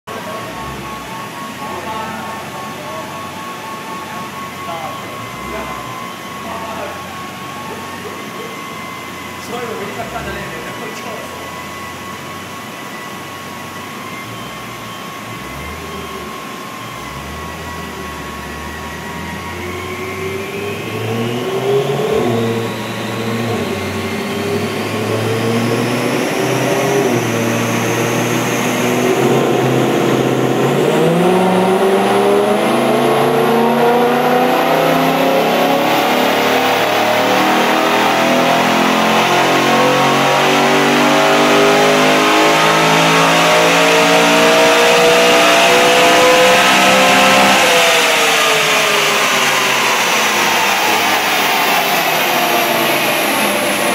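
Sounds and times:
car engine revving: 0.0s - 53.9s
high whine: 0.1s - 53.9s.

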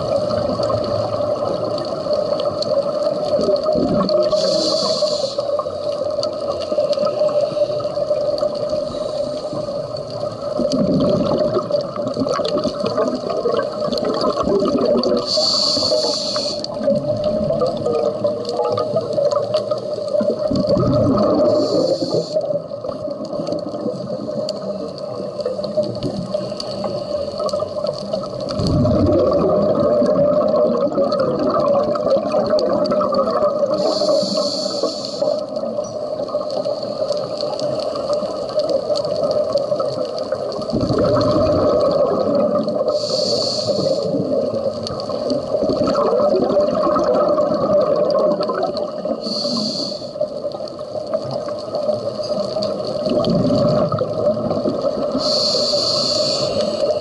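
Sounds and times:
exhaled bubbles rumbling: 0.0s - 57.0s
hissing regulator inhalations: 4.2s - 5.8s, 15.2s - 16.8s, 21.2s - 22.7s, 26.3s - 27.8s, 33.7s - 35.5s, 42.8s - 44.3s, 49.0s - 50.4s, 55.0s - 57.0s.

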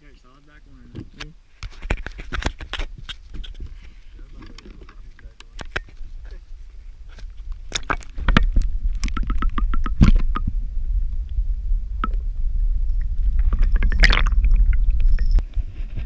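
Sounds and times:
underwater rumble and gurgling: 6.1s - 16.0s.

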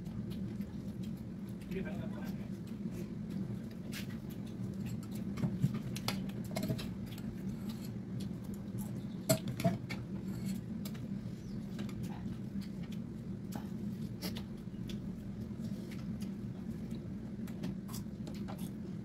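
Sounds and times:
chewing and lip smacks: 0.0s - 9.2s, 9.9s - 19.0s
steady low hum: 0.0s - 19.0s.

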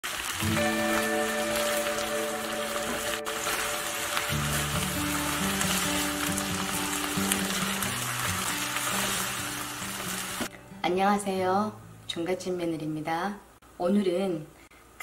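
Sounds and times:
spatula stir-frying: 0.0s - 10.5s
vegetables sizzling in a frying pan: 0.0s - 10.5s
background music low held notes: 0.4s - 12.9s.

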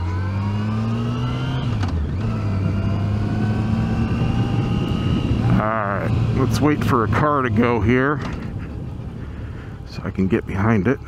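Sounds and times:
motorcycle engine accelerating: 0.0s - 11.0s
wind rushing: 2.4s - 6.5s.

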